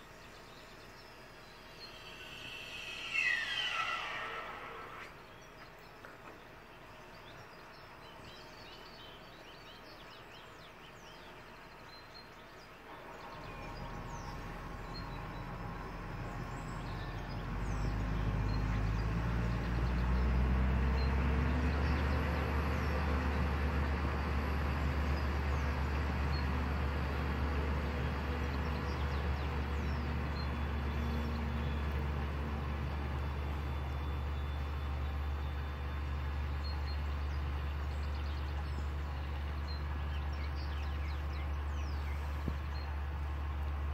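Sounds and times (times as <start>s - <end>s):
tractor diesel engine drone: 0.0s - 43.9s.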